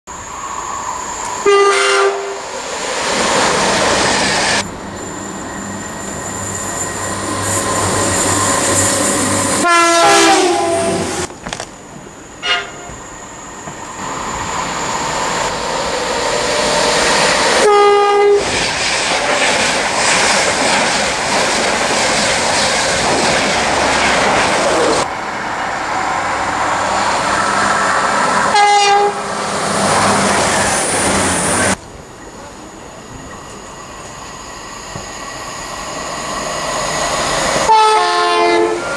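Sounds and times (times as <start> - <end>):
trains rushing past: 0.1 - 38.9
train horn blasts: 1.4 - 2.4, 9.6 - 11.3, 12.4 - 13.0, 17.6 - 18.5, 28.5 - 29.3, 37.6 - 38.9.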